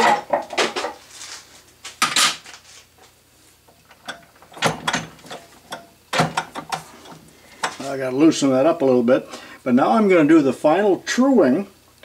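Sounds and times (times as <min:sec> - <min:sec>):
metal parts clattering and clicking: 0:03.9 - 0:07.8.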